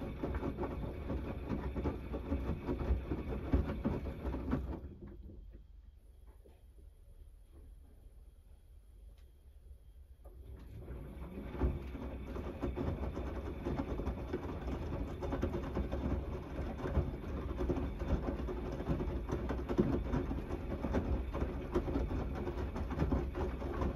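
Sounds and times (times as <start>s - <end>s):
laundry thuds in drum: 0.0s - 5.5s, 10.9s - 23.9s
wet laundry tumbling and sloshing: 0.0s - 5.5s, 10.4s - 23.9s
washing machine motor rumble: 0.0s - 23.9s.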